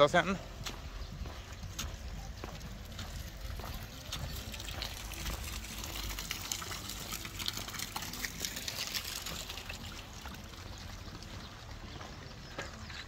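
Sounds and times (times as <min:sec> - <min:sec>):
water running down stream bed: 0:00.0 - 0:13.0
fountain jet splashing into pond: 0:04.1 - 0:11.4.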